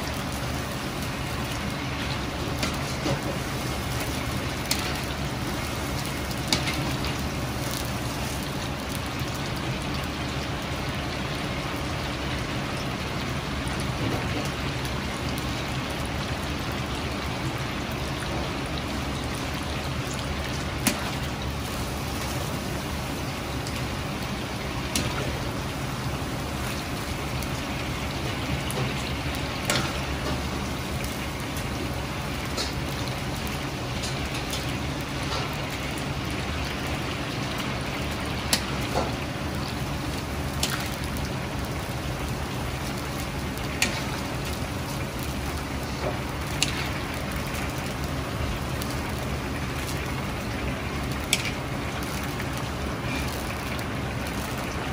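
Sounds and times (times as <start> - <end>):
oil sizzling and crackling: 0.0 - 54.9.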